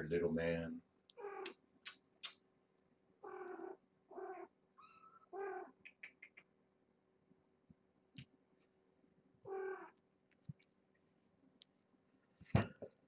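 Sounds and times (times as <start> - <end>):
kitten mewing: 3.2 - 6.3, 9.5 - 10.0.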